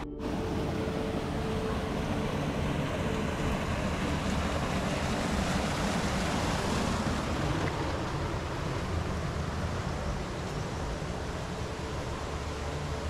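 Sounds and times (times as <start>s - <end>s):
stream rushing over rocks: 0.2s - 13.0s.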